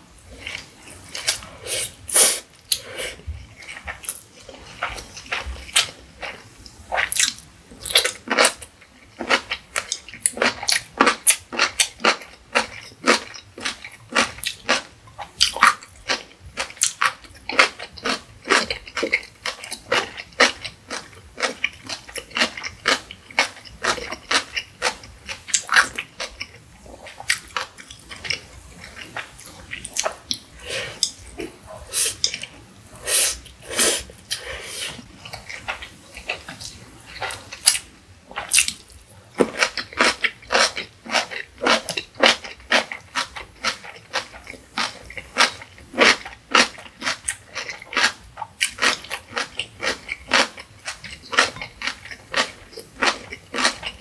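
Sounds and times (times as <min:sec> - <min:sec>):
chewing noodles: 0:00.3 - 0:32.6, 0:33.4 - 0:54.0
crisp crunching and chewing: 0:07.0 - 0:30.4, 0:35.0 - 0:54.0.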